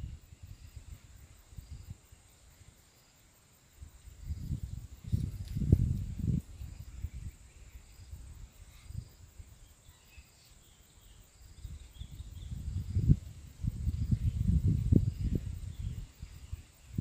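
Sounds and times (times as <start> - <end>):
high insect drone: 0.0 - 17.0
faint chirps: 3.8 - 13.3.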